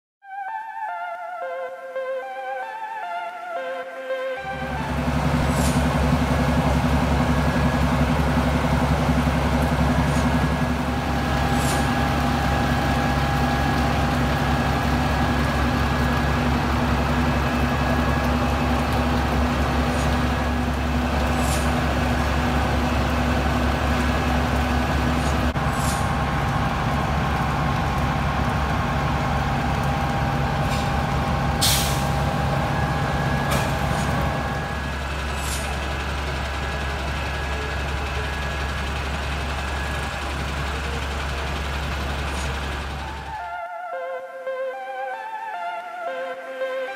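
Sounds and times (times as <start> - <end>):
diesel engine droning: 4.2 - 43.6.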